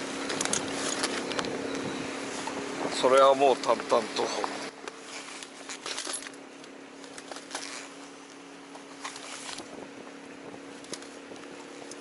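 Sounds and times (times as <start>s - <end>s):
small clicks and clinks: 4.9s - 7.8s.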